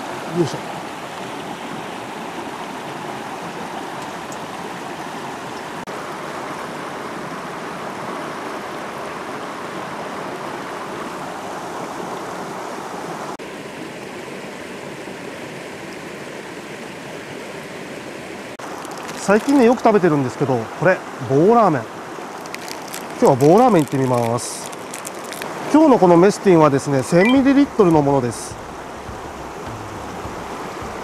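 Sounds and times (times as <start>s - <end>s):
river rushing over rocks: 18.3s - 31.0s.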